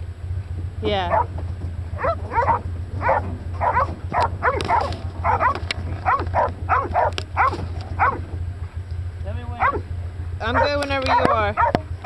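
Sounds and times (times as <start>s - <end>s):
dogs barking: 0.8s - 8.4s, 9.4s - 12.0s.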